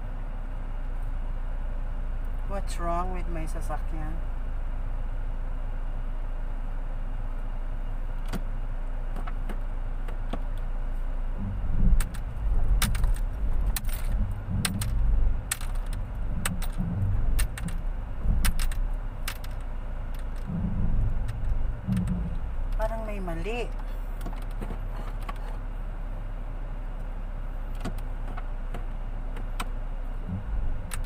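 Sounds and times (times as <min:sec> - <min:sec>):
car engine idling: 0:00.0 - 0:31.0
low thumps: 0:11.2 - 0:25.4, 0:29.4 - 0:31.0.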